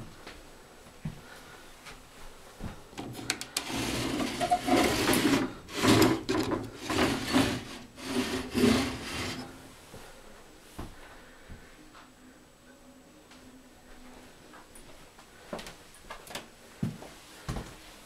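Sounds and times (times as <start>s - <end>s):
wood scraping against frame: 3.4s - 9.6s.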